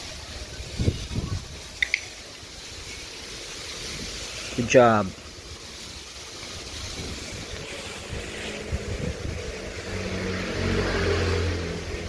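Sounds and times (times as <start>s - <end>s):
vehicle engine running: 6.4s - 12.0s.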